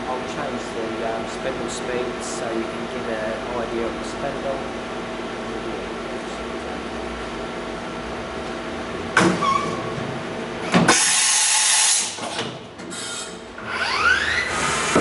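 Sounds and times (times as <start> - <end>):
loud air hiss: 10.9 - 12.2.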